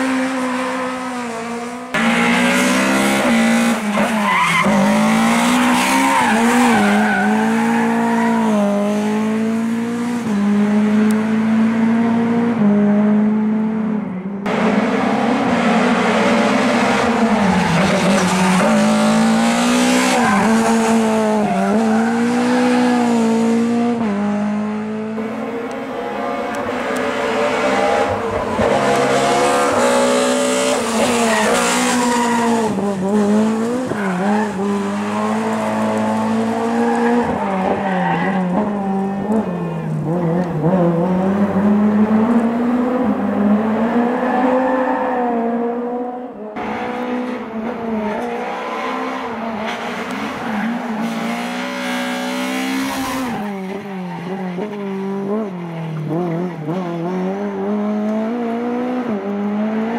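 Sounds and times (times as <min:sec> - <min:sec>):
rally car engine revving hard: 0:00.0 - 0:37.8, 0:54.6 - 0:59.9.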